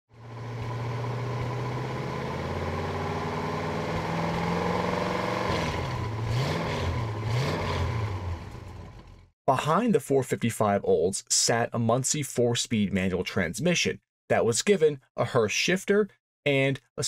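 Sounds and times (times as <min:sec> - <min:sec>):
engine throttle blips: 0:00.1 - 0:09.2
car engine idling: 0:00.2 - 0:04.6.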